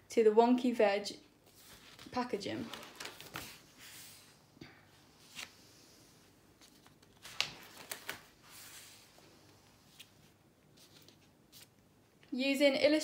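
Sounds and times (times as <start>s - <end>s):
paper page rustling: 1.5s - 4.3s, 6.6s - 11.8s.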